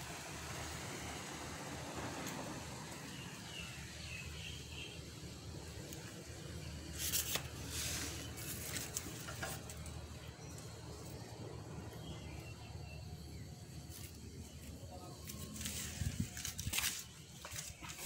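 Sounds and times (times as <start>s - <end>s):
rustle: 6.9s - 10.0s, 15.2s - 18.0s.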